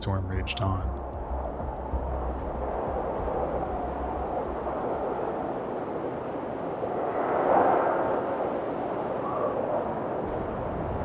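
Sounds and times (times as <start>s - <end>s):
deep low rumble: 0.0s - 5.3s
wind and water rushing: 0.0s - 11.0s.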